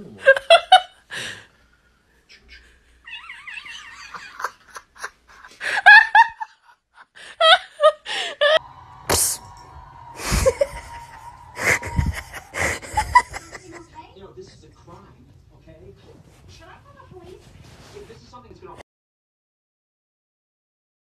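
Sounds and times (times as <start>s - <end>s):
people laughing: 0.1s - 1.1s, 2.4s - 14.0s.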